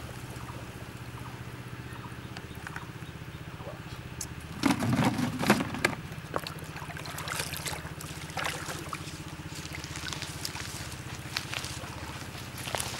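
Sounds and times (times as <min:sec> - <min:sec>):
water splashing around wading person: 0:03.6 - 0:12.9.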